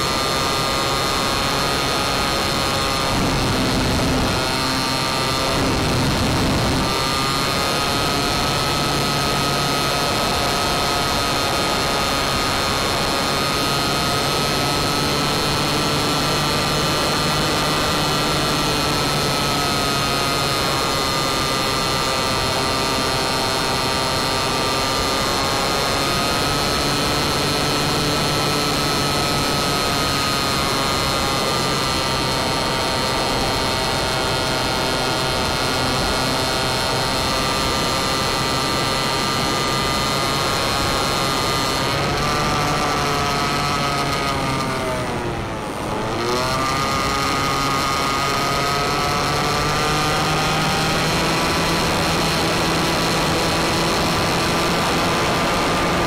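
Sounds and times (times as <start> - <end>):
model airplane motor whine: 0.0 - 56.0.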